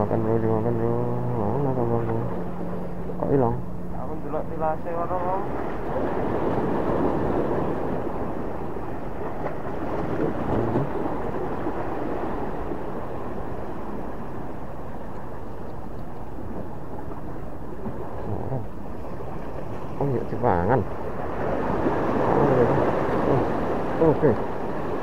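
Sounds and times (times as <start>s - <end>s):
waves washing against rocks: 5.2s - 14.4s, 21.0s - 25.0s.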